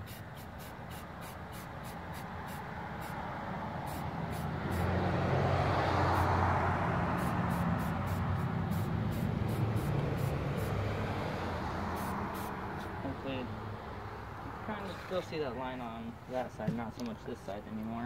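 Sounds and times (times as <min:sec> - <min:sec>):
aerosol spray can hissing: 0:00.0 - 0:03.2, 0:03.9 - 0:04.9, 0:07.2 - 0:10.8, 0:11.9 - 0:12.6
vehicle passing on road: 0:00.0 - 0:18.0.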